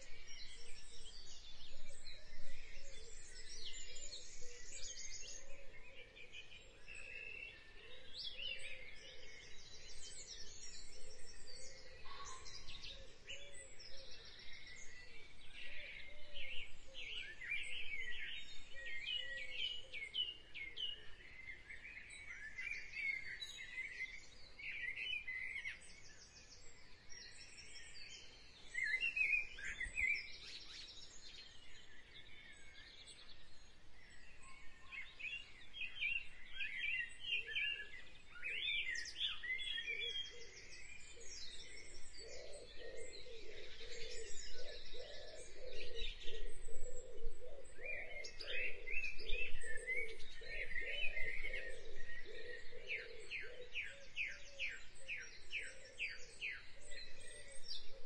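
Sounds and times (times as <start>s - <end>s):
birds chirping and singing: 0.0s - 58.0s.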